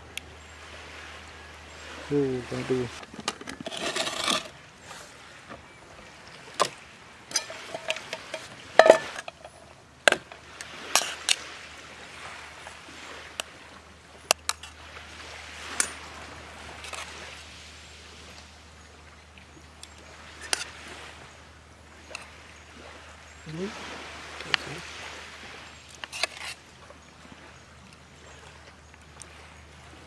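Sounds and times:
cookware clinking and knocking: 0:07.3 - 0:10.4.

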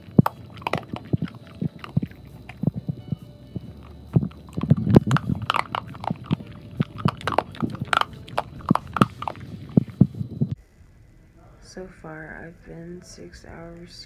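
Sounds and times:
dog chewing a bone: 0:00.0 - 0:10.6.

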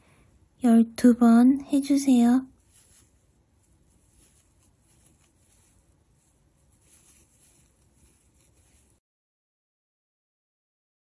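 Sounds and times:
soft rustles: 0:01.9 - 0:09.0.

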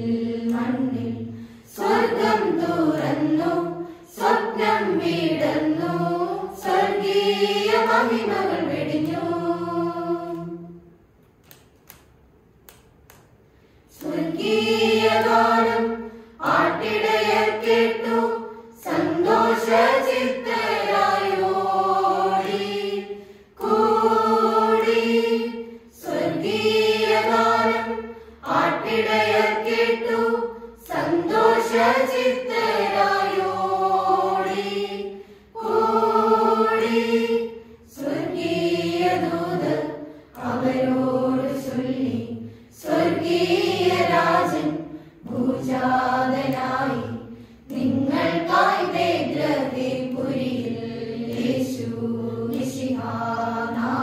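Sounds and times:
choir singing unaccompanied: 0:00.0 - 0:11.0, 0:13.9 - 0:54.0.

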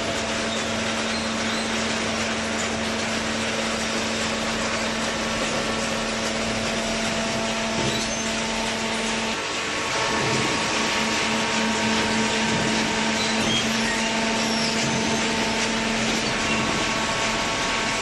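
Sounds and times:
baler machine whirring and hissing: 0:03.7 - 0:18.0.

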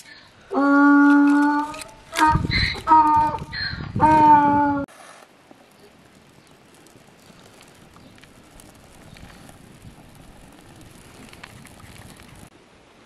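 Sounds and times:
twigs crackling in fire: 0:05.1 - 0:12.5.

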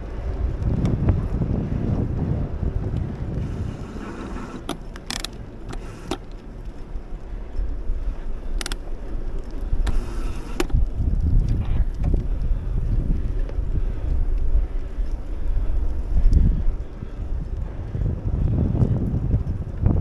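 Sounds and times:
wheels rolling on pavement: 0:00.0 - 0:20.0
wind buffeting microphone: 0:00.0 - 0:20.0
sharp clicks: 0:08.5 - 0:08.9.

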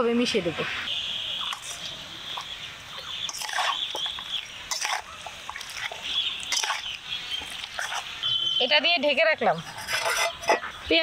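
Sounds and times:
wet squelching of meat mixing: 0:01.4 - 0:08.3
ladle scraping and knocking bowl: 0:09.6 - 0:10.7.

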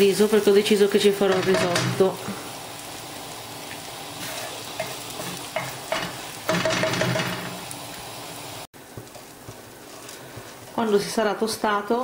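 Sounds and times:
onion sizzling in oil: 0:00.0 - 0:12.0.

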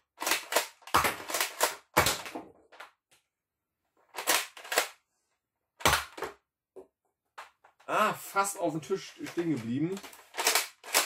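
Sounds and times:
toy blaster plastic clacks: 0:00.2 - 0:01.8, 0:04.2 - 0:05.0, 0:09.2 - 0:11.0.

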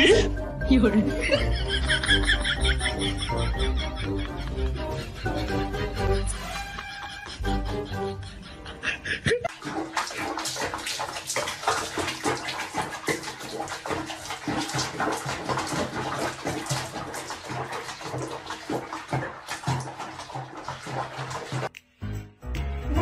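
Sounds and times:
water splashing in a sink: 0:09.4 - 0:21.7.

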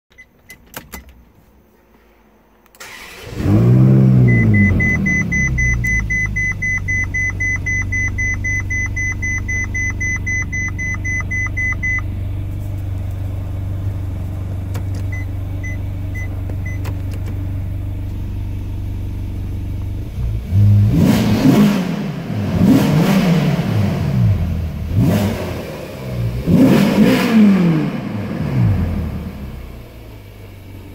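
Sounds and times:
car engine starting and idling: 0:02.7 - 0:30.9
engine revving: 0:02.8 - 0:06.2, 0:20.0 - 0:29.8
dashboard chime beeping: 0:04.3 - 0:12.0
clicks: 0:14.7 - 0:15.2, 0:16.4 - 0:17.4.

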